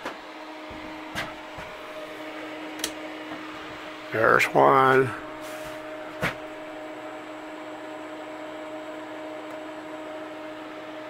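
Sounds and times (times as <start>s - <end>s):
electrical hum: 0.0s - 11.0s.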